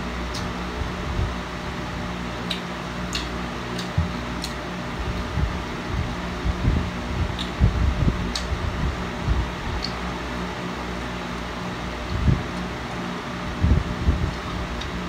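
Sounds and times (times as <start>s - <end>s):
electric fan whirring: 0.0s - 15.0s
person chewing food: 2.4s - 4.6s.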